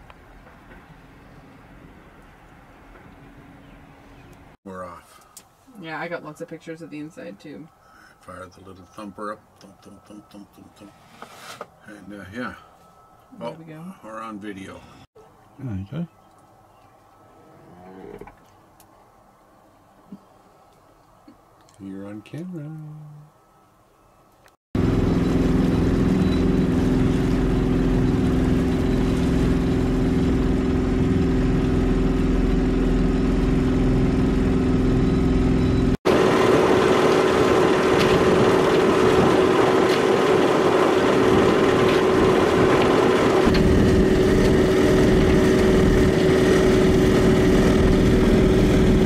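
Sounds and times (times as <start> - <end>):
boat engine humming: 24.8 - 49.0.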